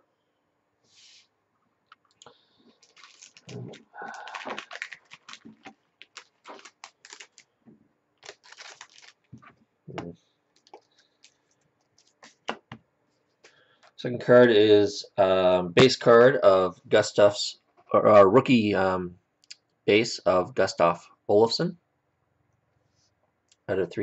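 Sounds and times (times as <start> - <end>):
cards clicking and rustling: 2.8 - 7.5, 8.2 - 12.8.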